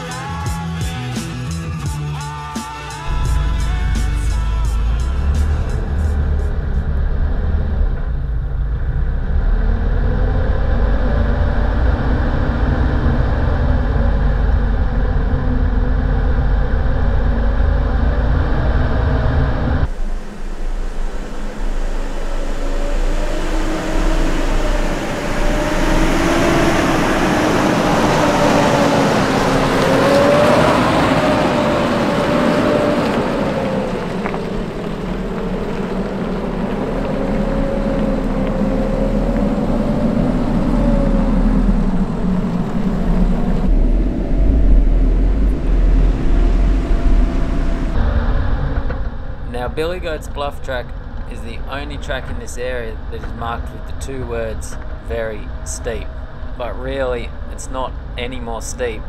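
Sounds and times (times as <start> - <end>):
vehicle engine rumble: 0.0 - 59.0
tyres on gravel: 31.0 - 39.4.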